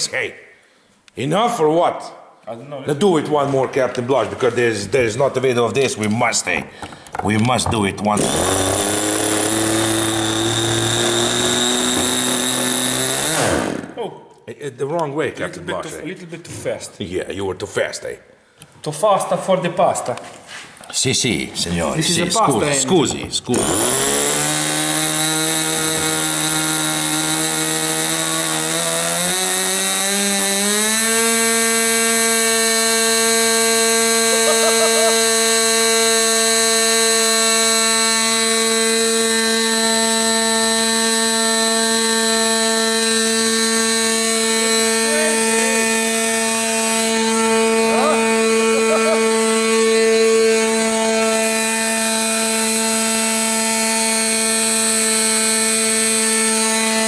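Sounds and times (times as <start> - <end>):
small two-stroke engine buzzing: 8.2 - 14.0, 23.5 - 57.0.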